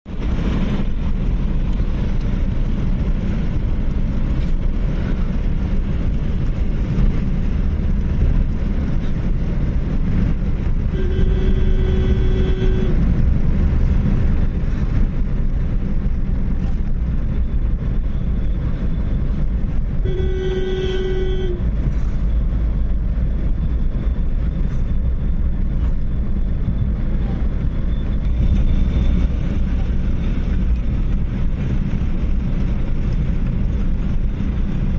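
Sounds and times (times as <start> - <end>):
car engine and tyre noise: 0.0 - 34.9
vehicle horn honking: 10.9 - 13.0, 20.0 - 21.7.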